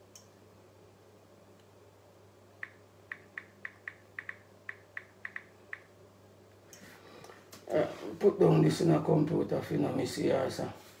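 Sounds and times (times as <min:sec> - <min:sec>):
phone keyboard clicks: 0:02.6 - 0:05.9.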